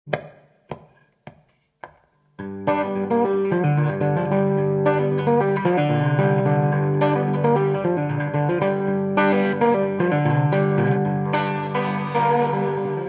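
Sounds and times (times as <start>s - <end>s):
guitar music: 2.4s - 13.0s.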